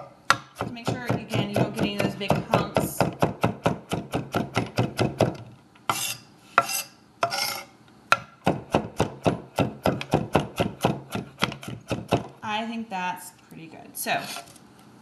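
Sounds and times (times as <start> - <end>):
knife chopping on wooden board: 0.3 - 12.4
blade scraping across board: 5.9 - 7.7.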